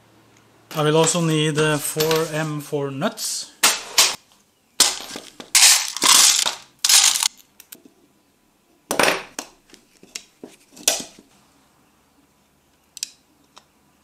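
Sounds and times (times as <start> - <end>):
small metal nuts clinking: 4.8 - 7.6.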